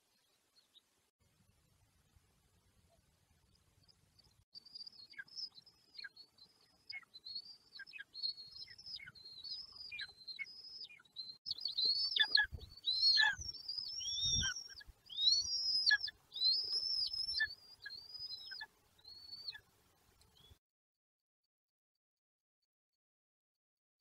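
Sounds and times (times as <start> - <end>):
young buzzards whistled calls: 12.0 - 18.6.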